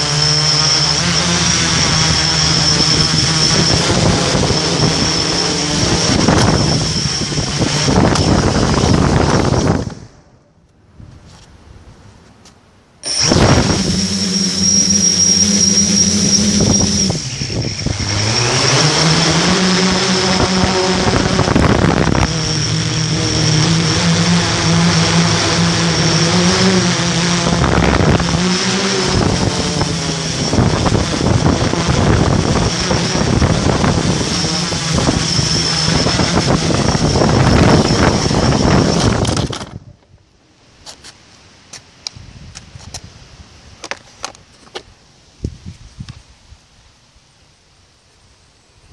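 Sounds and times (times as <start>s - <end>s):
drone motors buzzing: 0.0s - 10.1s, 13.0s - 39.8s.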